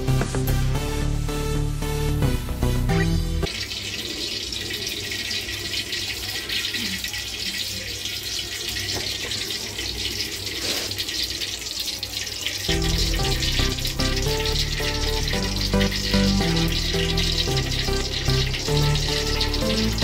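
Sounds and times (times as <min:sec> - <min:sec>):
background music: 0:00.0 - 0:03.5, 0:12.7 - 0:20.0
oil sizzling: 0:00.0 - 0:20.0.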